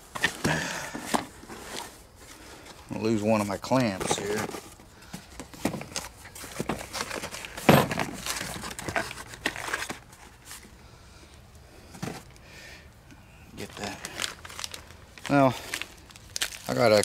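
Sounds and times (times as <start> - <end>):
plastic crinkling: 13.6 - 17.0.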